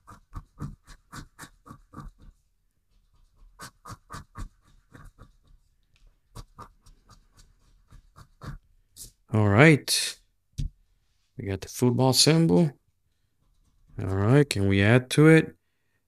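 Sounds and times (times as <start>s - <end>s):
coin scratching lottery ticket: 0.0s - 2.3s.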